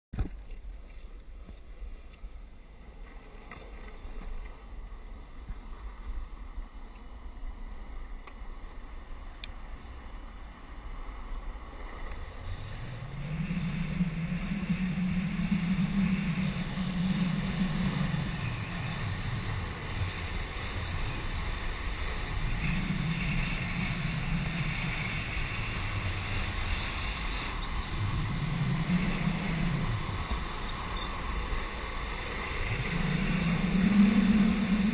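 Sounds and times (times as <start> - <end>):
longboard wheels rolling on asphalt: 0.2 - 34.9
low hum: 0.2 - 34.9
wind buffeting microphone: 12.2 - 34.9.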